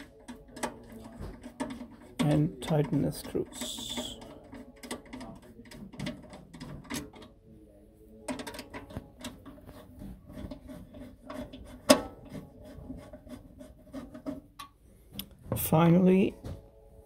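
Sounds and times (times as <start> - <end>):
screwdriver clicks and scrapes: 0.0 - 7.3.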